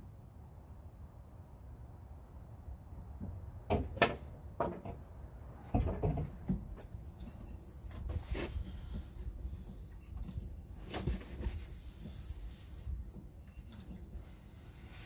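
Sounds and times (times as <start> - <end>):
knocks and clicks of handling: 3.2 - 5.1, 5.7 - 8.2
short rustle: 6.8 - 15.0.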